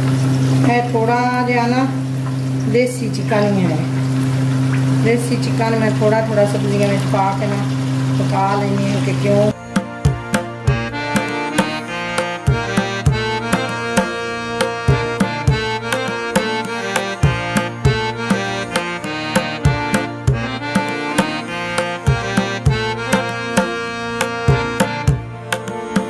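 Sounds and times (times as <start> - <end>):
sustained chords: 7.8 - 26.0
hand drum strokes: 9.6 - 26.0.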